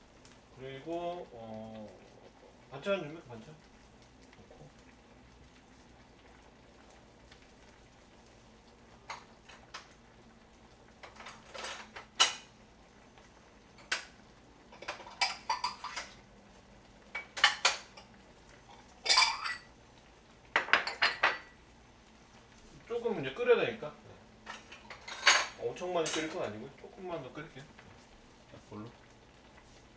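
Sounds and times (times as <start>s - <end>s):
ceramic bowls clinking: 19.0s - 19.7s.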